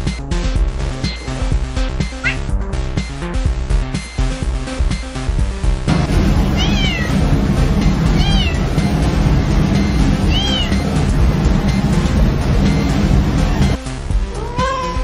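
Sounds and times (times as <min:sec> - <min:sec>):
background music: 0:00.0 - 0:15.0
cat meowing: 0:02.2 - 0:02.5, 0:06.6 - 0:07.2, 0:08.1 - 0:08.7, 0:10.2 - 0:10.8, 0:14.3 - 0:15.0.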